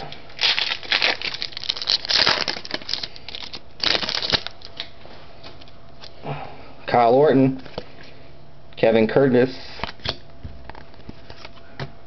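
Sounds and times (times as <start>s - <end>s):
foil wrapper tearing and crinkling: 0.4s - 4.9s.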